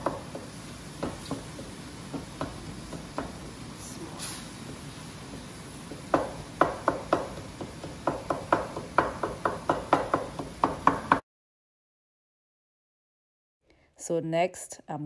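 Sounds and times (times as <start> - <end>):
wooden spatula knocking on pot: 0.0 - 3.6, 4.7 - 11.2.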